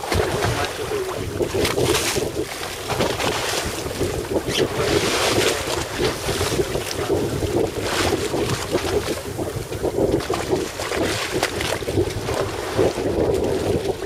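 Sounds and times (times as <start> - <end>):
water washing on choppy waves: 0.0 - 14.0
wind buffeting microphone: 0.0 - 14.0.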